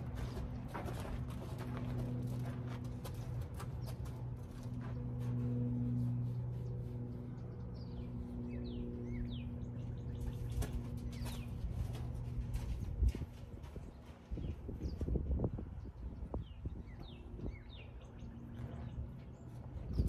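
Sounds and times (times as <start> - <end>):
low motor hum: 0.0 - 20.0.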